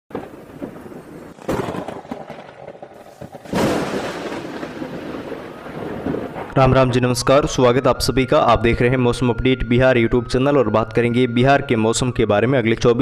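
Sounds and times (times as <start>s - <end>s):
thunder crack: 0.1s - 8.2s
thunder crash and rumble: 0.1s - 8.2s.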